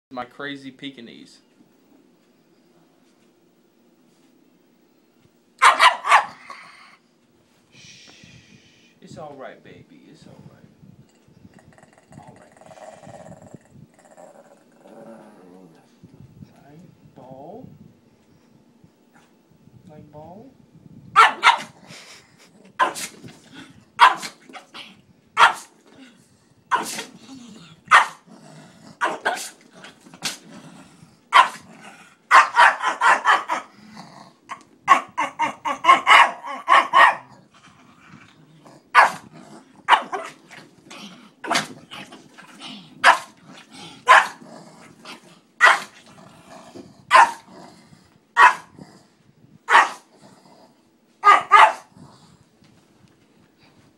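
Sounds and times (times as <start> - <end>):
small dog barking: 5.6 - 6.5, 21.2 - 21.8, 22.8 - 23.1, 24.0 - 24.4, 25.4 - 25.7, 26.7 - 27.1, 27.9 - 28.2, 29.0 - 29.5, 31.3 - 31.7, 32.3 - 33.7, 34.9 - 37.3, 38.9 - 39.3, 39.9 - 40.4, 43.0 - 43.4, 44.1 - 44.4, 45.6 - 45.9, 47.1 - 47.5, 48.4 - 48.8, 49.7 - 50.1, 51.2 - 51.9.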